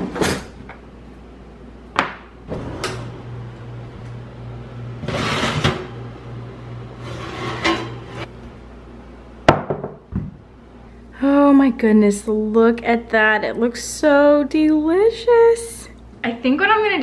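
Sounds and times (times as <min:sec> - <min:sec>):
low steady hum: 0:00.0 - 0:17.0
oven door opening: 0:02.5 - 0:04.1
drawer shutting: 0:05.0 - 0:05.9
ceramic dish scraping oven rack: 0:05.0 - 0:06.0, 0:06.9 - 0:08.3.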